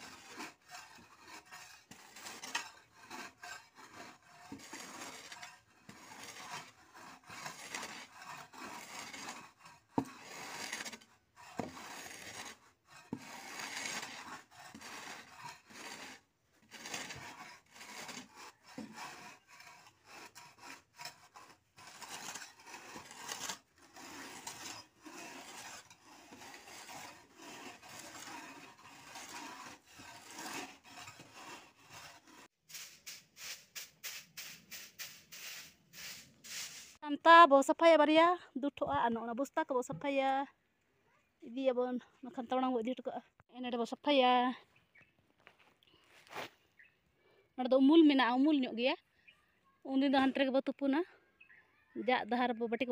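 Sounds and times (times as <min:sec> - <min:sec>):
tool scraping earth: 0:00.0 - 0:37.0, 0:44.9 - 0:47.0.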